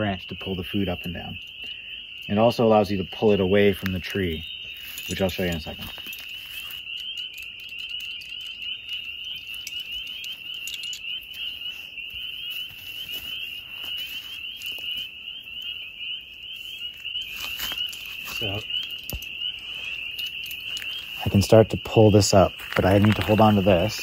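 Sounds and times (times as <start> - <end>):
chorus of frogs peeping: 0.0 - 24.0.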